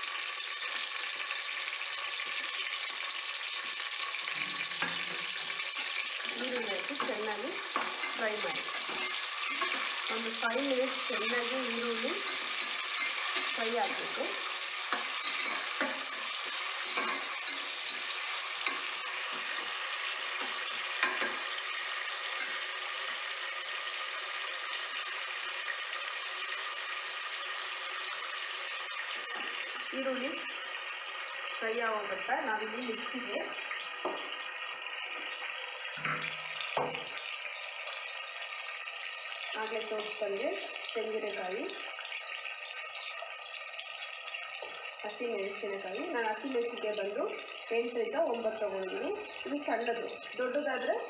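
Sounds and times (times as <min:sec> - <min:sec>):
onions sizzling in hot oil: 0:00.0 - 0:51.0
spoon scraping and knocking pot: 0:06.9 - 0:10.1, 0:11.2 - 0:21.6.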